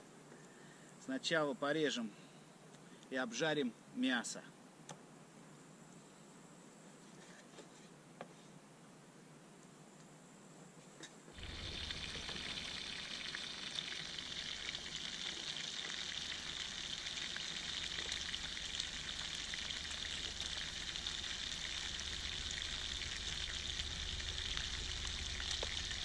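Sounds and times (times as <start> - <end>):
fat popping and crackling: 11.4 - 26.0
meat sizzling: 11.4 - 26.0.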